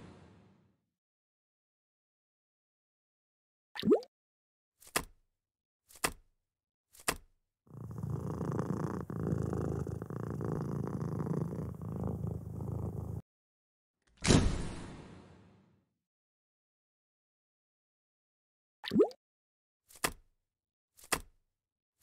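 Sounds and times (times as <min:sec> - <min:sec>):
cat purring: 0:07.7 - 0:13.2.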